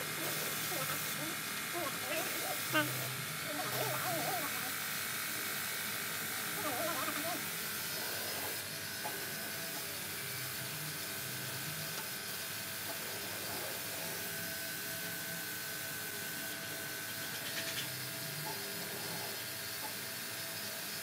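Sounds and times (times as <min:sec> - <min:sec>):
spray gun hissing: 0:00.0 - 0:05.0, 0:05.9 - 0:11.9.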